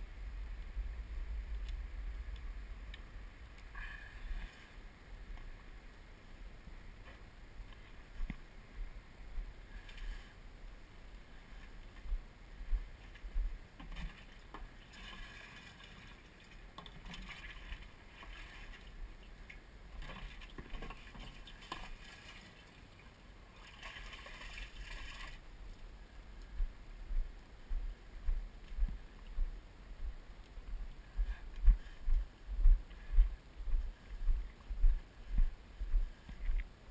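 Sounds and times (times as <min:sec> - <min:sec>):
wind rumble on microphone: 0:00.0 - 0:13.6, 0:24.8 - 0:36.9.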